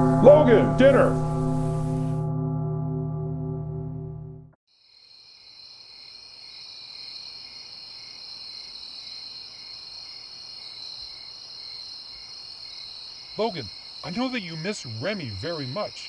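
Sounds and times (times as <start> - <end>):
crickets trilling: 4.7 - 16.0
lower cricket chirp pulsing: 4.8 - 16.0.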